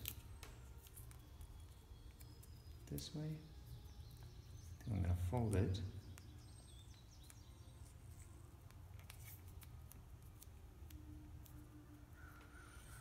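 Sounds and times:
clicks and rustles of taped wire: 0.0 - 3.3, 7.2 - 12.5.

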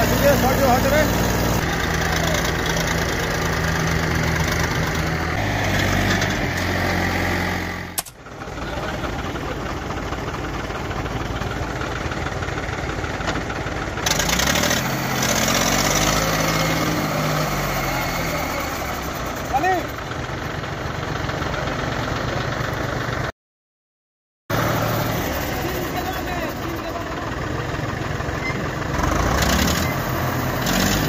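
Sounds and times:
engine revving up: 0.0 - 8.0, 14.0 - 19.5, 24.5 - 26.1, 28.8 - 31.0
diesel tractor engine running: 0.0 - 23.3, 24.5 - 31.0
sharp click: 8.0 - 8.2.

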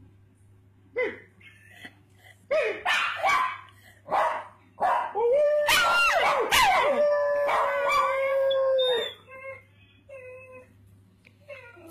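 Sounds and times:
dog howling: 5.1 - 9.3
dog whining: 5.2 - 10.8.

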